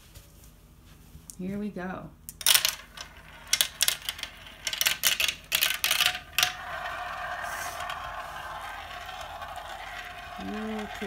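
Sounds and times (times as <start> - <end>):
marbles clacking on plastic track: 2.4 - 11.0
marbles rolling whir in bowl: 2.4 - 11.0.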